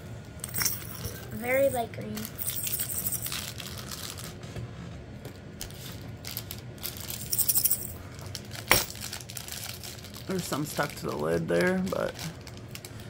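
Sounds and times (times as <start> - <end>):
rhinestones rattling in a jar: 0.4 - 4.3, 6.2 - 10.5.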